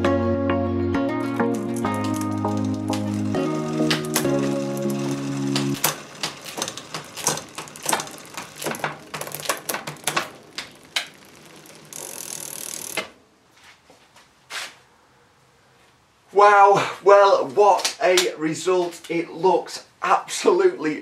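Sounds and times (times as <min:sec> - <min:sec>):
bicycle chain clicking and rattling: 0:01.3 - 0:13.2.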